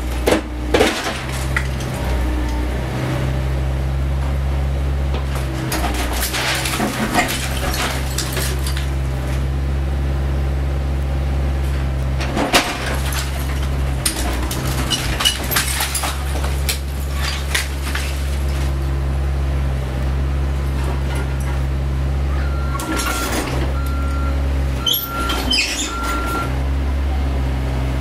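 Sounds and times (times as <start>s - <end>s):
masonry cracking and debris falling: 0.0s - 2.6s, 5.0s - 9.6s, 11.8s - 26.5s
excavator diesel engine running: 0.0s - 28.0s.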